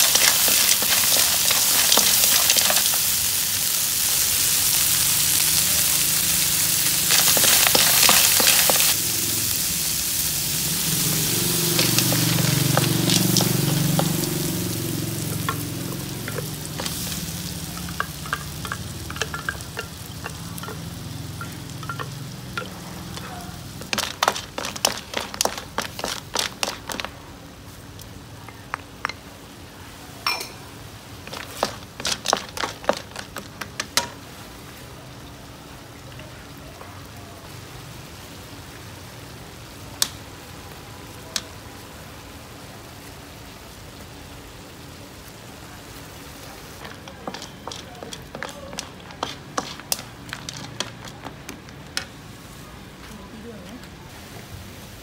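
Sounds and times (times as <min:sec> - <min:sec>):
snail shells clattering in a wok: 0:00.0 - 0:09.0, 0:10.9 - 0:27.2, 0:31.1 - 0:34.1, 0:46.8 - 0:52.0.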